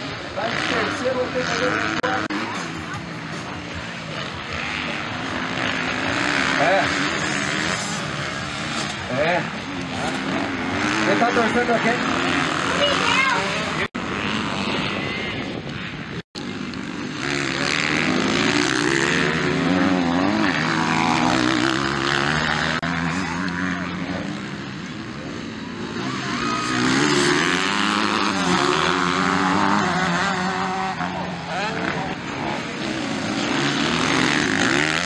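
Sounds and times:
motocross engines revving: 0:00.0 - 0:35.0.

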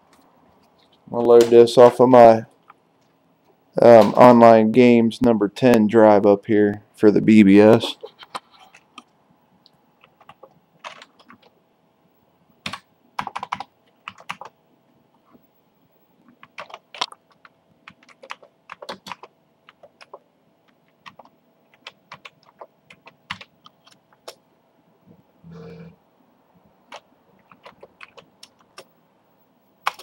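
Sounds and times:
computer keyboard typing clacks: 0:10.0 - 0:11.5, 0:12.6 - 0:14.5, 0:16.4 - 0:24.4, 0:26.9 - 0:28.9.

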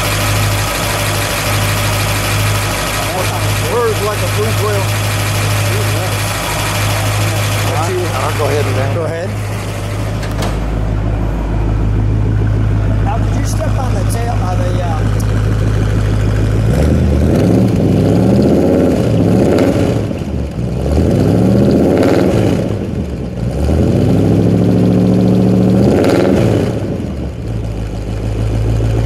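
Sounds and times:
car engine idling and revving: 0:00.0 - 0:29.0.

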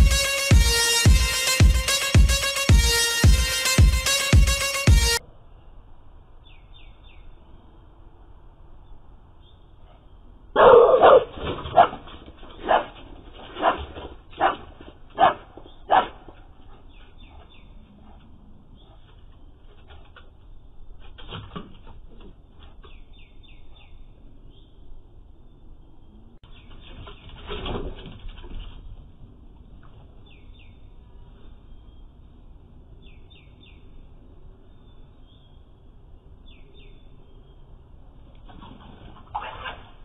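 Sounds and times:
dog barking: 0:10.6 - 0:12.0, 0:12.6 - 0:16.3, 0:39.4 - 0:39.8.

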